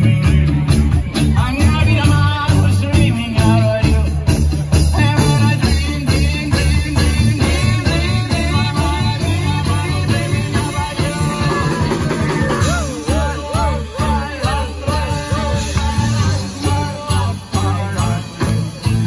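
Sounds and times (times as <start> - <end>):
bouncing bass beat: 0.0 - 19.0
live band dance music: 0.0 - 19.0.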